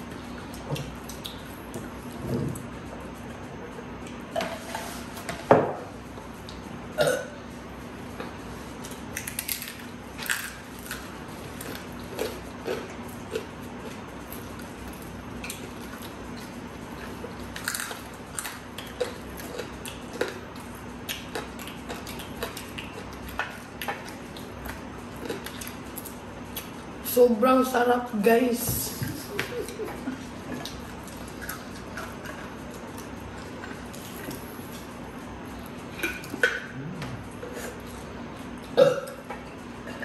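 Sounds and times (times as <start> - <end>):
crunching and chewing: 0.0 - 5.3, 5.9 - 27.0, 29.7 - 40.0.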